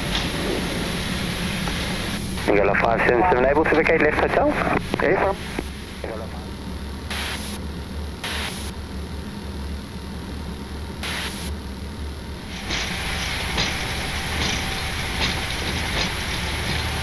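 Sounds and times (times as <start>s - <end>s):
jet engines and wheels rushing: 0.0s - 7.5s
cockpit hum: 0.0s - 11.0s.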